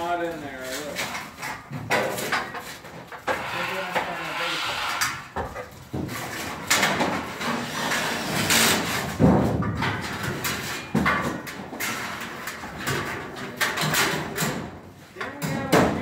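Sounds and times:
steel studs clanking and scraping: 0:00.6 - 0:14.7.

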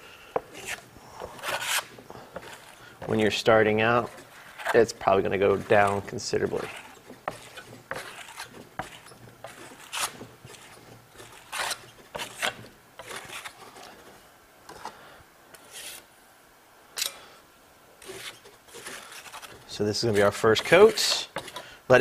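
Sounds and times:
trowel scraping plaster: 0:00.4 - 0:14.1, 0:18.0 - 0:21.7.

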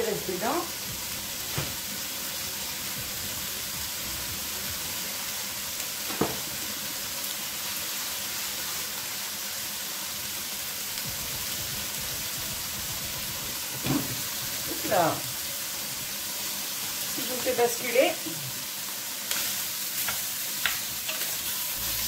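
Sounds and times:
meat sizzling in a pot: 0:00.0 - 0:22.0.

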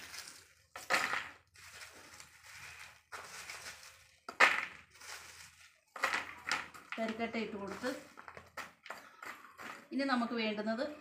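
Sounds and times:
charcoal clattering into plastic pot: 0:00.0 - 0:08.9
charcoal rustling and crunching: 0:00.0 - 0:10.1.

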